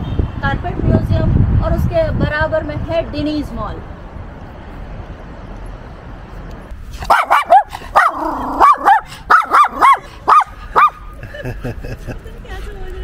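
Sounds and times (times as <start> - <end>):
small dog barking: 7.0 - 11.0.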